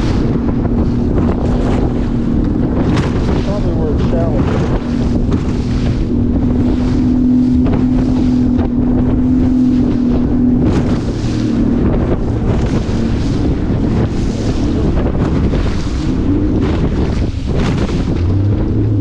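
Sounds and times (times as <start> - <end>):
outboard motor droning: 0.0 - 19.0
waves splashing against hull: 0.0 - 19.0
wind buffeting microphone: 0.0 - 19.0.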